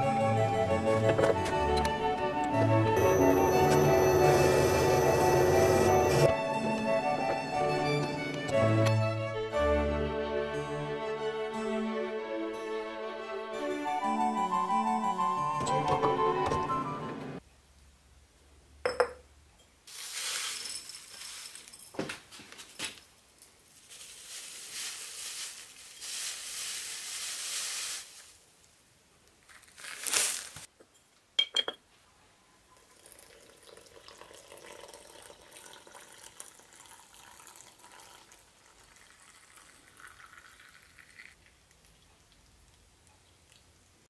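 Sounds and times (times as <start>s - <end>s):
ceramic cup clinking on metal: 18.8s - 19.2s, 30.9s - 31.8s
loose leaves rustling into cup: 23.6s - 28.5s, 29.4s - 30.7s
water trickling into cup: 32.8s - 42.3s.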